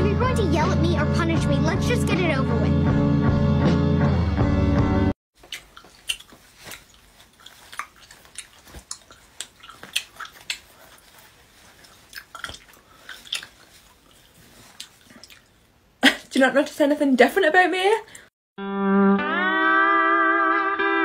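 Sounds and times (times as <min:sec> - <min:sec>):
music: 0:00.0 - 0:05.1, 0:18.6 - 0:21.0
wet mouth clicks and smacks: 0:05.4 - 0:15.7.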